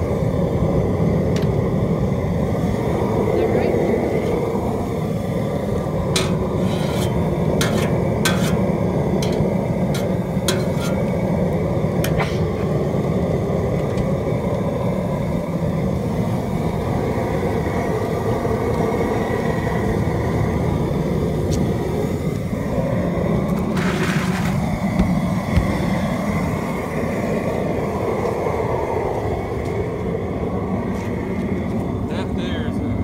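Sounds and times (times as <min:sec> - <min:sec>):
propane burner rumbling: 0:00.0 - 0:33.0.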